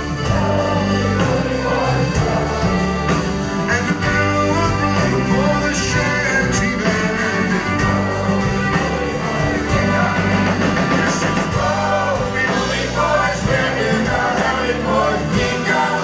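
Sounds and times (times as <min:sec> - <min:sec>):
drums: 0:00.0 - 0:16.0
man singing sea shanty: 0:03.7 - 0:07.8.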